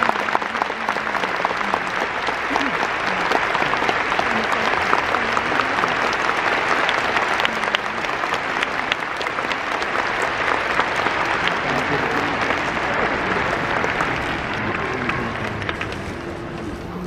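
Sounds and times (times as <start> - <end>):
stadium crowd applauding: 0.0 - 17.0.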